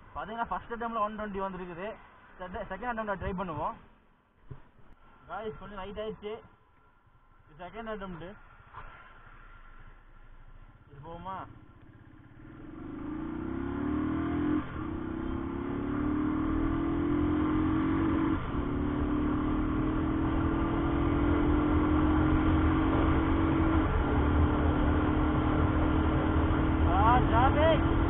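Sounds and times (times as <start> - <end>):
motorcycle engine accelerating: 10.6 - 28.0.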